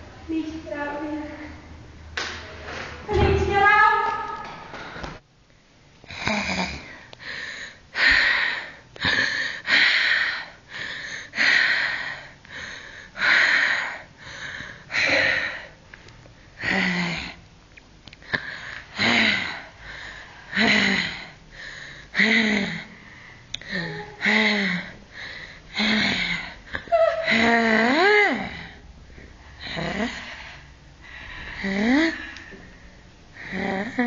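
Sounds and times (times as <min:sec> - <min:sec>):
person panting heavily: 0:06.1 - 0:15.8, 0:18.3 - 0:33.9.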